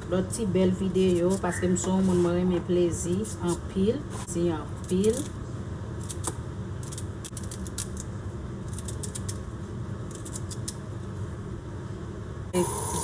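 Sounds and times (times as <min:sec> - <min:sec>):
knife cutting celery: 0:08.7 - 0:09.4.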